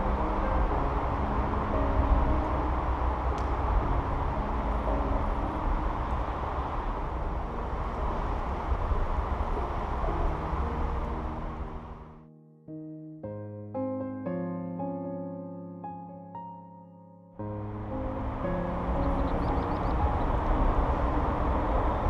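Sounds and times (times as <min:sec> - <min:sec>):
low outdoor rumble: 0:00.0 - 0:12.2, 0:17.4 - 0:22.0.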